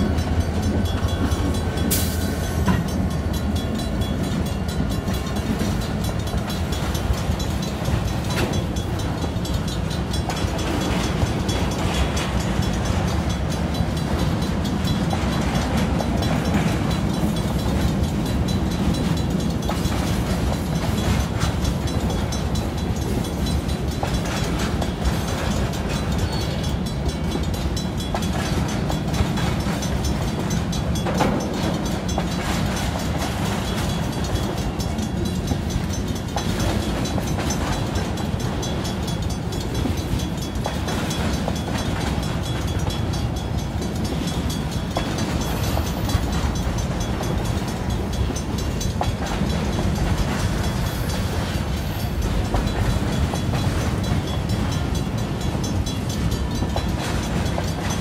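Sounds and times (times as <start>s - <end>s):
crossing bell ringing: 0.0s - 58.0s
train wheels rumbling on rails: 0.0s - 58.0s.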